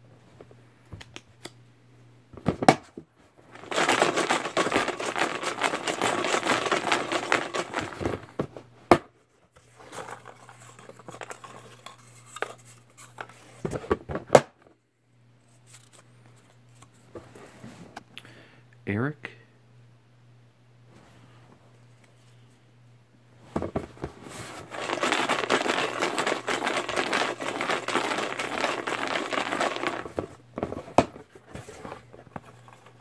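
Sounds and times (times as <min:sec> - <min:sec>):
paper slips rattling in plastic tub: 0:03.5 - 0:08.3, 0:09.9 - 0:13.3, 0:24.5 - 0:33.0.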